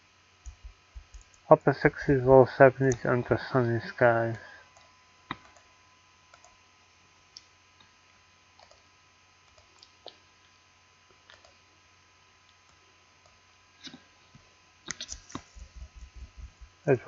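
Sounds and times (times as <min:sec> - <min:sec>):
low electrical hum: 0:00.0 - 0:17.0
computer mouse clicks: 0:00.4 - 0:01.4, 0:06.3 - 0:06.6, 0:08.6 - 0:08.8, 0:09.4 - 0:10.1, 0:11.3 - 0:11.6, 0:14.9 - 0:15.7.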